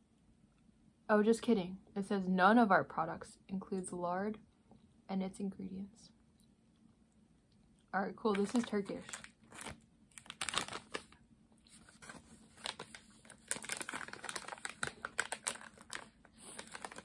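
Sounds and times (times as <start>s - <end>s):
plastic packaging crinkling: 8.2s - 17.0s.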